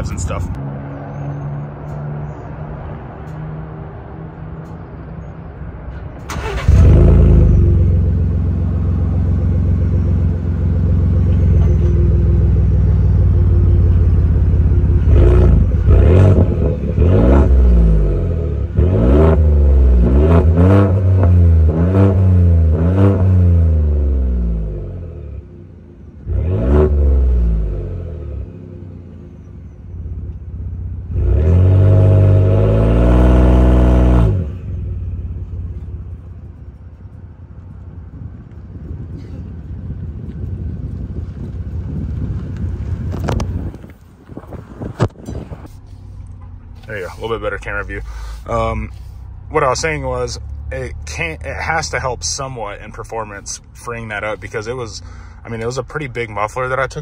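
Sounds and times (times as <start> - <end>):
engine revving: 6.3 - 25.4, 26.2 - 28.9, 31.0 - 35.5.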